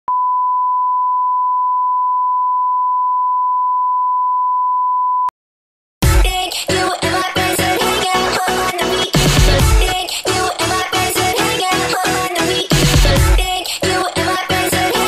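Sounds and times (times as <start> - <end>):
steady test tone beep: 0.1 - 5.3
loud electronic dance music: 6.0 - 15.0.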